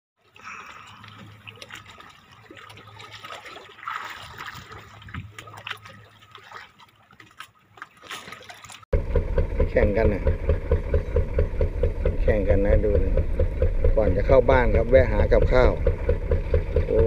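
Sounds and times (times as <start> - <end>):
sea water lapping and splashing: 0.2 - 8.9.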